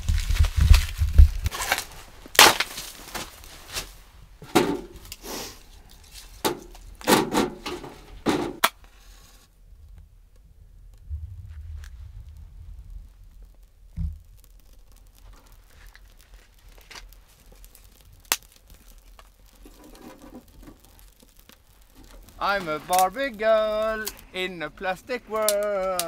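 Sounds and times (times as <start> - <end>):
dry twigs snapping: 0.0 - 4.0, 13.0 - 24.4, 25.3 - 26.0.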